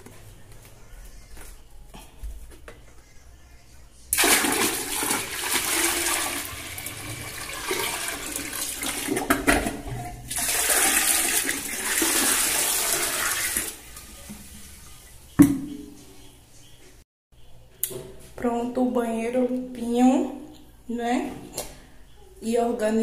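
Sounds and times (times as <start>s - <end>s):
toilet flushing: 4.1s - 15.2s.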